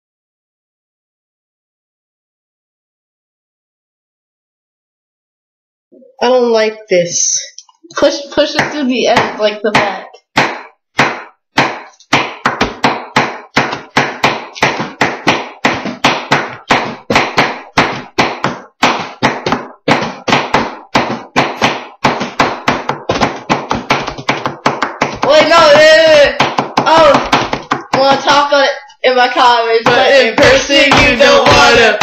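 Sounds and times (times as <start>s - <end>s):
hands drumming on tabletop: 8.4s - 28.5s, 29.8s - 32.0s.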